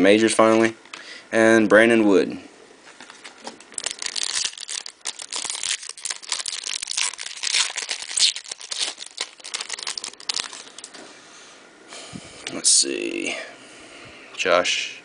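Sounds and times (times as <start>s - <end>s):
wrapper crinkling and tearing: 3.0s - 11.0s.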